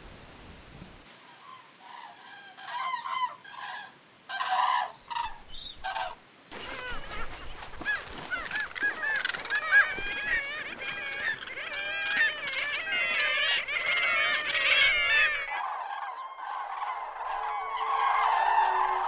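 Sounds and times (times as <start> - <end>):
chorus of bird calls: 1.2 - 19.0
cranes trumpeting: 5.9 - 19.0.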